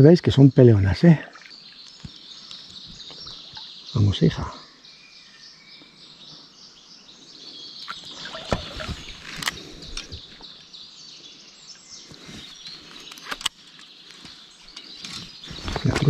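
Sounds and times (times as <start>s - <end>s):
birds chirping: 0.0s - 16.0s
fish splashing in water: 8.1s - 9.2s.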